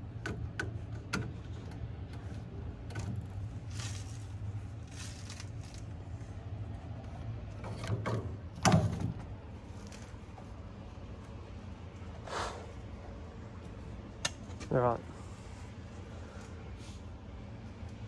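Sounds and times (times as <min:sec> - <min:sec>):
steady low hum: 0:00.0 - 0:18.0
scraping rustles: 0:03.3 - 0:06.2.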